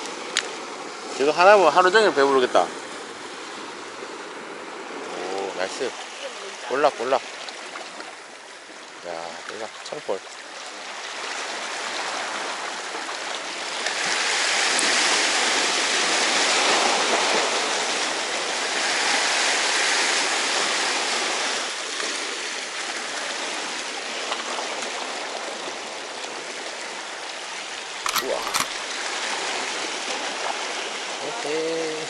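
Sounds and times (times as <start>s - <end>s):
waves splashing over rocks: 0.0s - 32.0s.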